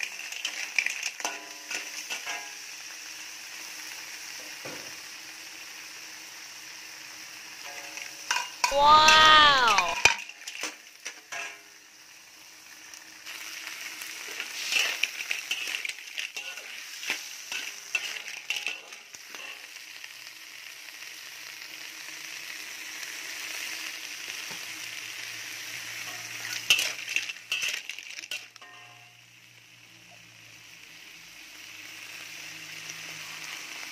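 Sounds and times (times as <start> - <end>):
clams sizzling in a wok: 0.0 - 33.9
metal spatula scraping a pan: 10.0 - 11.7, 13.3 - 19.8, 26.0 - 29.1.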